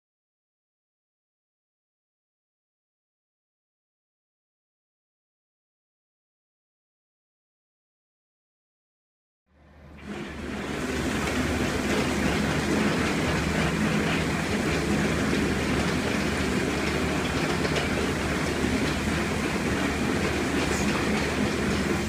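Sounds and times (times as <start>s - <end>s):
loader engine hum: 9.6s - 22.0s
screening bucket crushing clatter: 10.0s - 22.0s.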